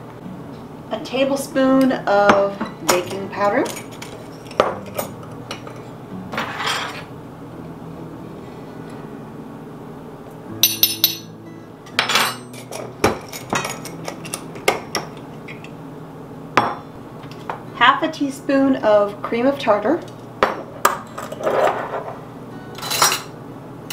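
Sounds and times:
glass jars clinking: 2.9 - 7.1
metal spoon scraping: 3.0 - 7.1.

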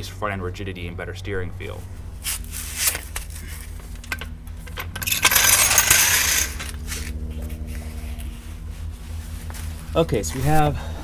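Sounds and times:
metal clinking and rattling: 4.0 - 7.1
jingling metal clatter: 4.6 - 6.8.

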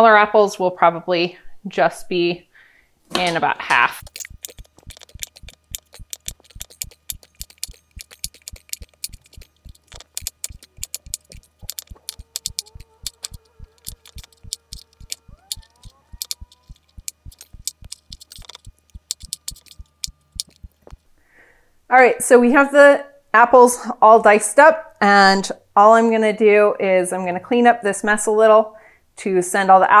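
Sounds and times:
faint wavering melody: 4.0 - 20.9.

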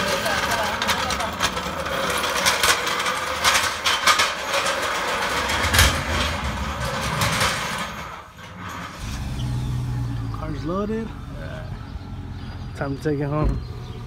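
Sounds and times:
metal clanks and knocks: 0.0 - 9.4, 11.8 - 14.0
vehicle engine running: 9.0 - 14.0.

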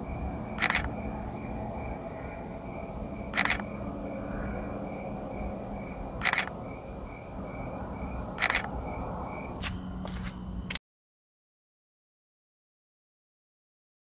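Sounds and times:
insects chirping: 0.0 - 10.8
camera shutter clicking: 0.6 - 0.9, 3.4 - 3.6, 6.2 - 6.5, 8.4 - 8.7.

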